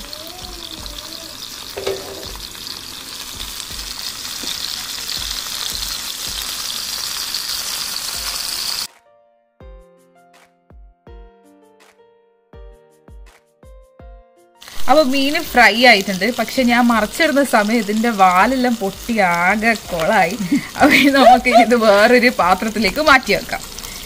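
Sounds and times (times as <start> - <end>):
fish sizzling in hot oil: 0.0 - 8.9, 14.6 - 24.0
soft background music: 0.3 - 23.7.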